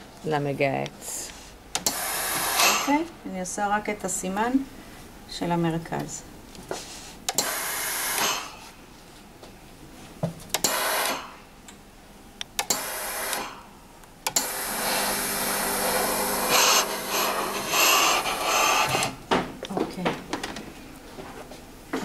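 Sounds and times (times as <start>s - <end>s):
steam iron hissing: 1.8s - 2.9s, 6.8s - 8.6s, 12.7s - 13.6s, 14.4s - 19.2s
low steady hum: 13.7s - 22.0s.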